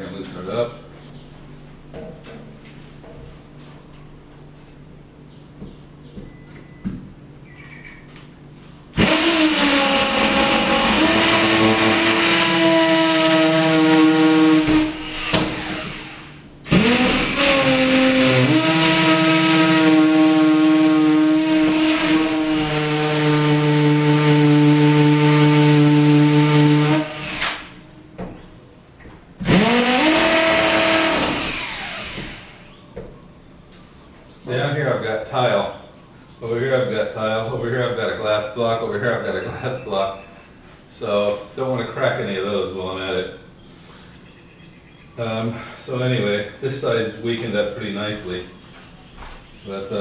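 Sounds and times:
cordless drill whining: 9.0 - 21.3, 29.5 - 32.6.

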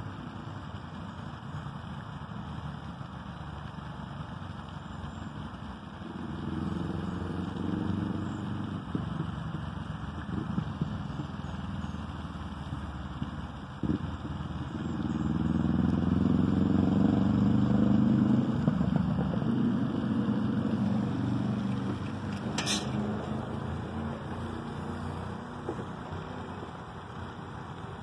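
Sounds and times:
vehicle engine passing by: 6.0 - 10.8, 11.5 - 27.3.

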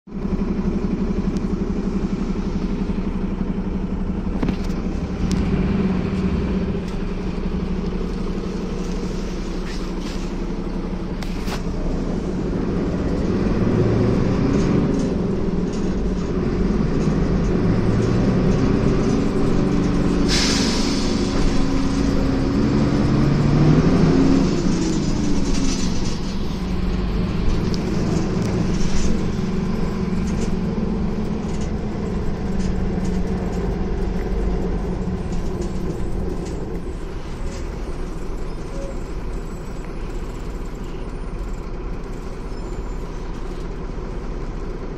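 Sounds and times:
bus diesel engine accelerating: 0.1 - 44.9
compressed air hiss: 20.3 - 21.4.

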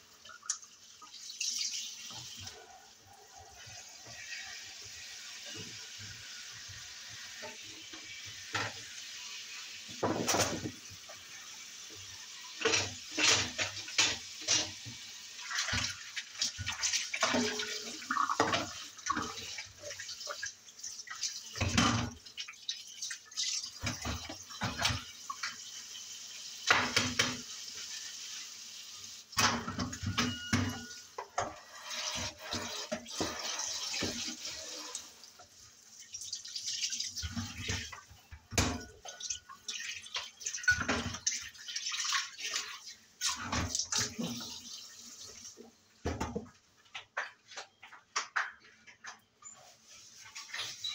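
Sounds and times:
dishes and cutlery clinking: 12.6 - 14.8, 29.4 - 32.3, 40.6 - 41.3.

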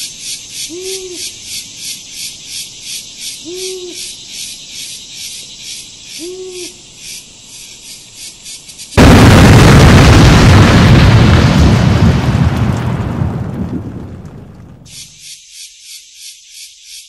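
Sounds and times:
crickets chirping: 0.0 - 11.6, 14.8 - 17.0
low hoots: 0.6 - 1.4, 3.4 - 4.2, 6.1 - 6.8.

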